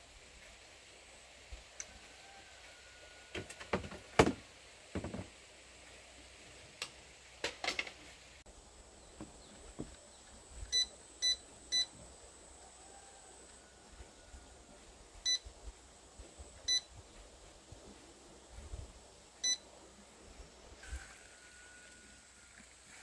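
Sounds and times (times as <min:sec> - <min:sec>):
electronic device beeping: 0:10.7 - 0:11.9.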